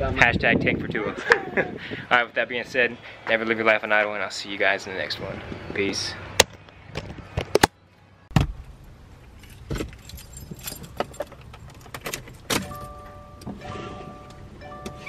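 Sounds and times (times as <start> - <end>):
keys jangling: 9.4 - 13.0.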